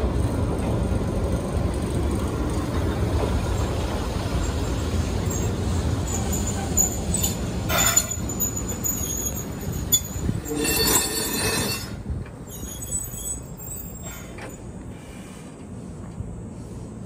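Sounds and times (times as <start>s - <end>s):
train wheels squealing: 4.4s - 14.7s.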